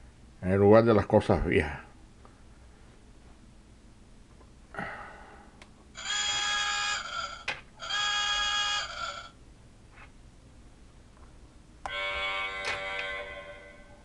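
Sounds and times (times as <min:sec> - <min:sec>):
buzzing electronic tone: 0:06.0 - 0:09.4, 0:11.9 - 0:14.0.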